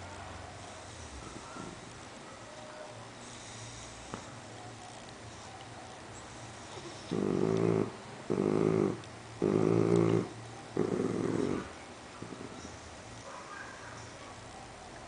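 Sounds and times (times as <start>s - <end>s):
dog growling low: 6.6s - 12.8s.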